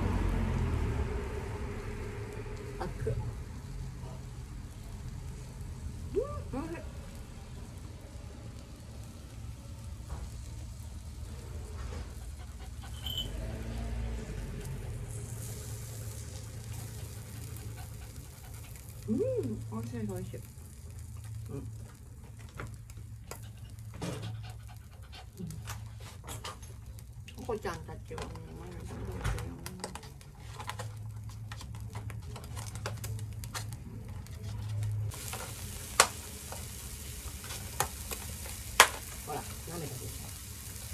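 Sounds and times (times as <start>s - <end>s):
meat sizzling on a grill plate: 3.0s - 24.0s, 35.1s - 40.9s
dog panting rapidly: 11.9s - 13.2s, 16.8s - 19.1s, 23.4s - 26.2s.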